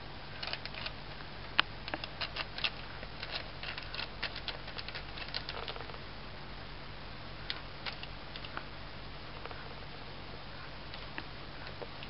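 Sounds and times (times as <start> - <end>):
kitten claws scratching cloth: 1.9 - 5.8.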